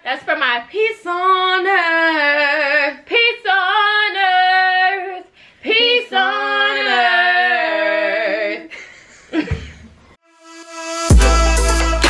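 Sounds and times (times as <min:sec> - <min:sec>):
woman singing unaccompanied: 0:00.3 - 0:08.7.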